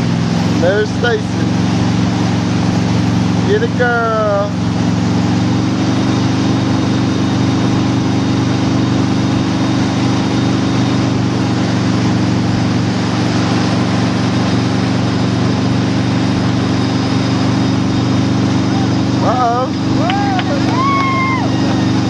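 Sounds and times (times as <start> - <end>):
motorboat engine droning: 0.0 - 22.0.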